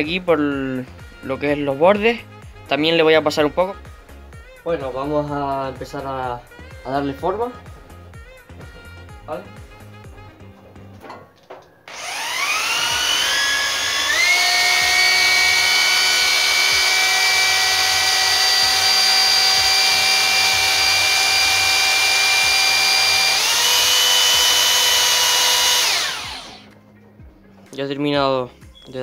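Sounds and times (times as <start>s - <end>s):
electric drill sanding wood: 11.9s - 26.7s.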